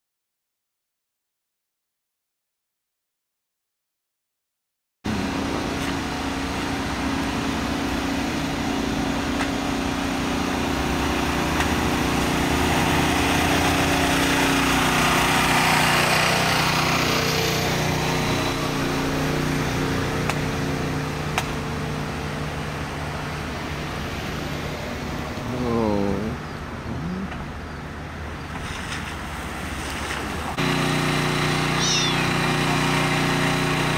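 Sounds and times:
pickup truck driving past: 0:05.1 - 0:25.4.

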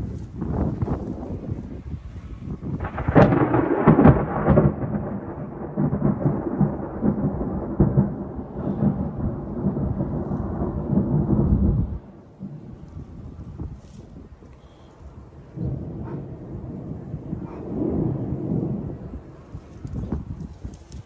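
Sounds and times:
thunder cracking and rumbling: 0:00.0 - 0:21.0.

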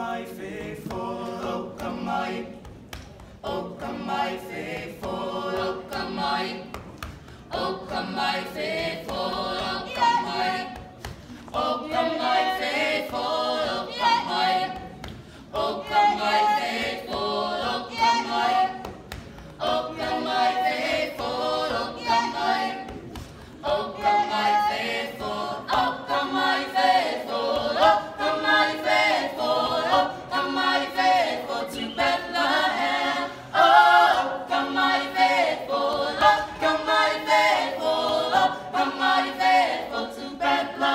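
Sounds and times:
carolers singing a cappella: 0:00.0 - 0:40.9.

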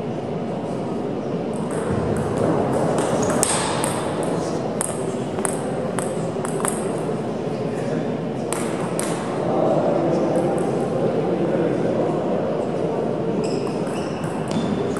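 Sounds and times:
murmur of voices: 0:00.0 - 0:14.9
table tennis ball clicking: 0:04.8 - 0:06.9.

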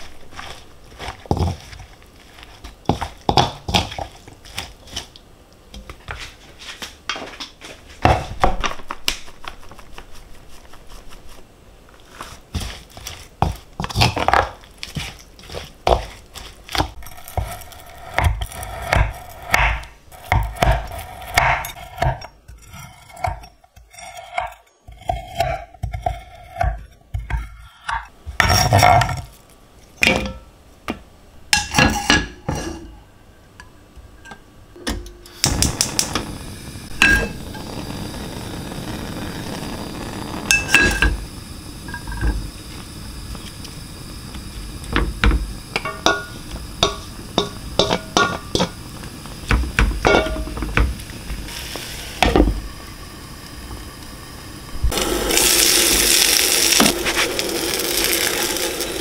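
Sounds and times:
steady low hiss: 0:00.0 - 0:27.4, 0:28.0 - 0:59.0
dishes and utensils clinking: 0:45.8 - 0:48.8, 0:50.0 - 0:50.7.

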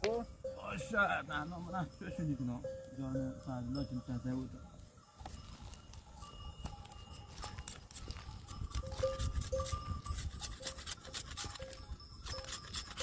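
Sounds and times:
knife scraping wood: 0:07.7 - 0:13.0.

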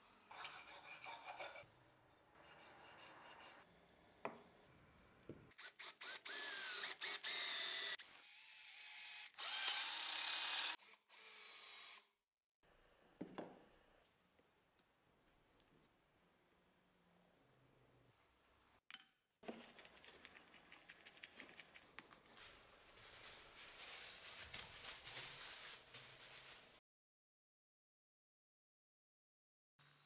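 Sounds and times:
cordless drill boring into wood: 0:05.6 - 0:12.1
rubbing and handling sounds: 0:19.4 - 0:26.8.

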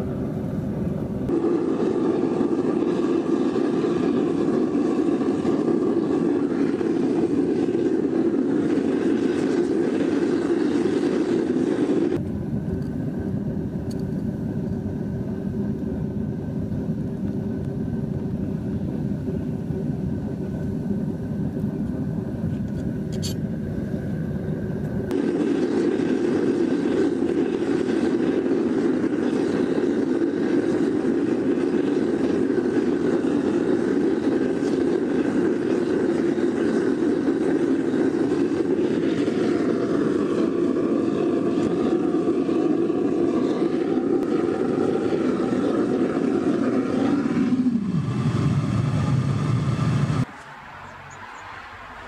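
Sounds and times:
gas burner roaring: 0:00.9 - 0:12.2, 0:24.8 - 0:50.3.

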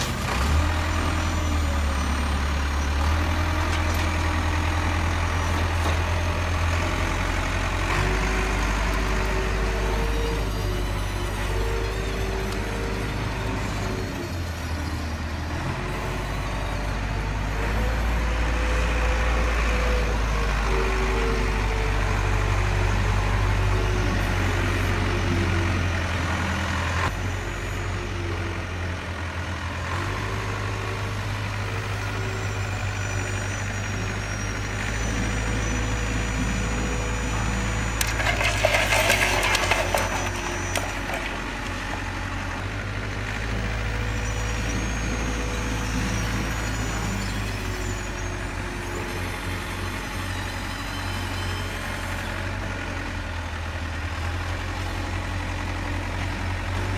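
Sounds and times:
stones rattling into toy truck: 0:38.0 - 0:41.8.

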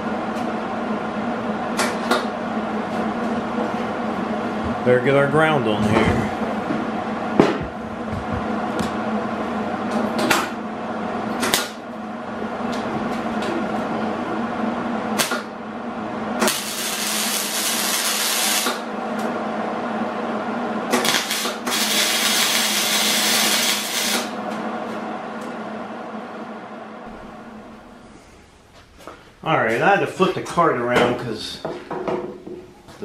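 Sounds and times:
welding arc hissing: 0:16.4 - 0:18.9, 0:20.9 - 0:24.4.

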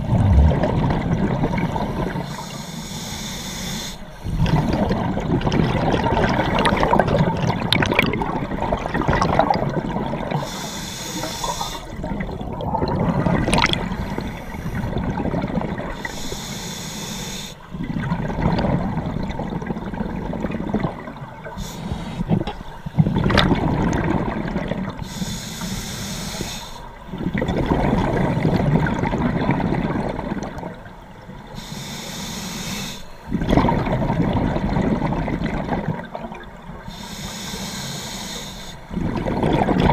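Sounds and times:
exhaled bubbles rushing underwater: 0:00.0 - 0:02.5, 0:04.2 - 0:16.4, 0:17.6 - 0:25.2, 0:26.9 - 0:31.6, 0:33.2 - 0:37.0, 0:38.8 - 0:39.9
scuba regulator hissing inhalations: 0:01.7 - 0:04.9, 0:10.4 - 0:12.0, 0:16.0 - 0:17.7, 0:21.6 - 0:22.4, 0:25.0 - 0:27.0, 0:31.5 - 0:33.3, 0:36.9 - 0:38.9.

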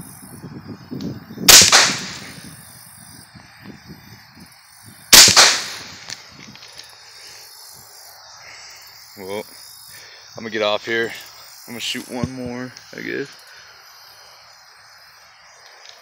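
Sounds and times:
rifle shots with echo: 0:01.5 - 0:02.4, 0:05.1 - 0:06.2.

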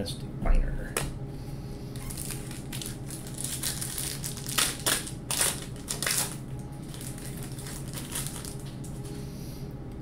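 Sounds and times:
wrapper crinkling and tearing: 0:02.0 - 0:09.1.

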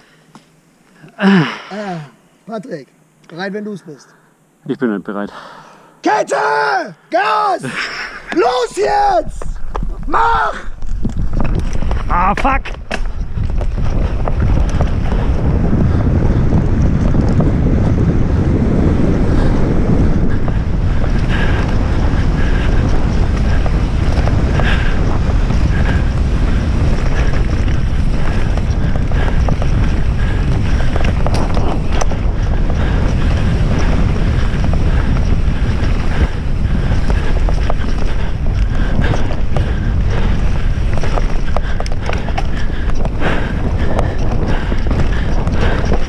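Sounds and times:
tyres running over dirt: 0:07.9 - 0:46.0
wind buffeting microphone: 0:08.2 - 0:46.0
bike rattling over bumps: 0:10.8 - 0:46.0.

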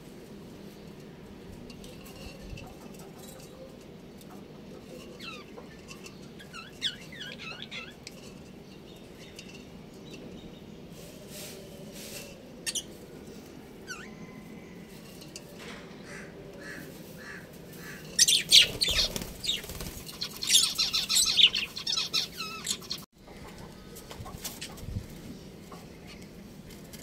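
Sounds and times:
sharp bird calls: 0:16.1 - 0:23.1
budgerigars chirping: 0:18.2 - 0:23.0.

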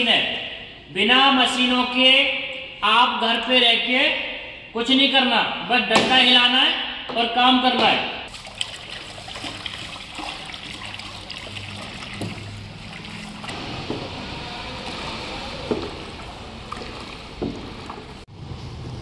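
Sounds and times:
liquid pouring into water: 0:08.3 - 0:13.6, 0:15.8 - 0:18.0
stick stirring and sloshing: 0:08.3 - 0:13.6, 0:15.1 - 0:18.2.

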